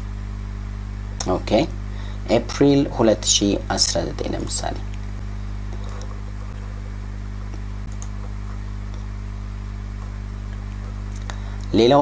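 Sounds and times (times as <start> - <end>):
low electrical hum: 0.0 - 12.0
computer mouse clicks: 7.5 - 9.1.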